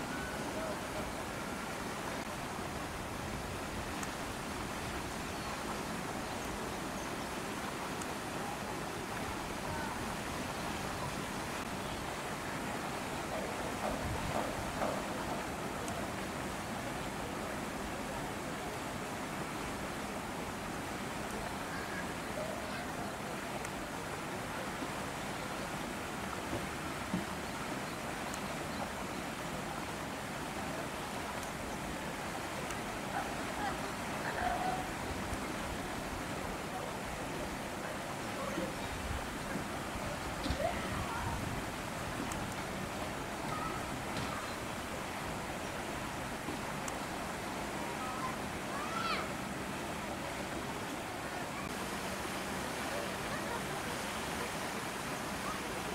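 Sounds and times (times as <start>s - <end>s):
outdoor ambient noise: 0.0s - 55.9s.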